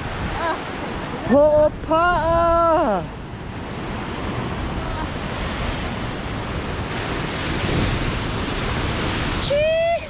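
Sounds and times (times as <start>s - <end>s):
wind buffeting microphone: 0.0s - 10.0s
surf breaking on rocks: 2.0s - 10.0s.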